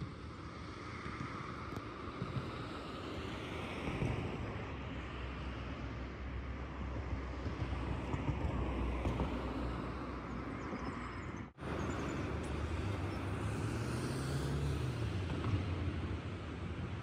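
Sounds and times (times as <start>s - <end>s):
cars passing: 2.0s - 17.0s
low engine hum: 6.2s - 17.0s.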